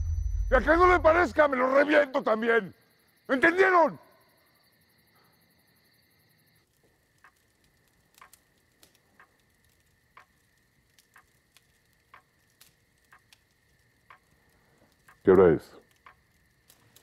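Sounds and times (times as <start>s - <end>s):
soft clicks and ticks: 6.7s - 17.0s.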